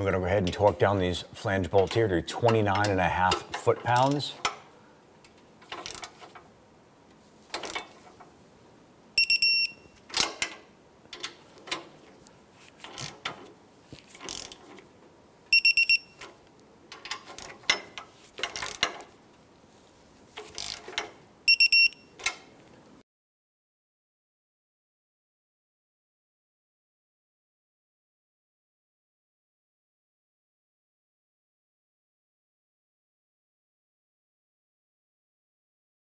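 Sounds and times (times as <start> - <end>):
ratchet clicks: 14.2 - 14.6, 16.2 - 19.1, 20.4 - 21.1.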